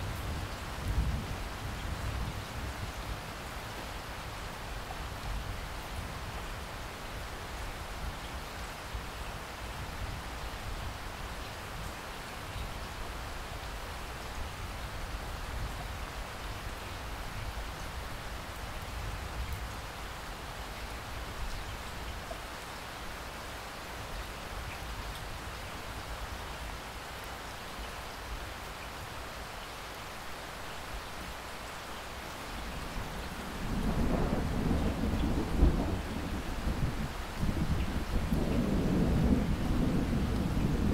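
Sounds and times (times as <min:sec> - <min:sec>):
heavy rain splashing on water: 0:00.0 - 0:40.9
thunder rumbling: 0:33.6 - 0:40.9.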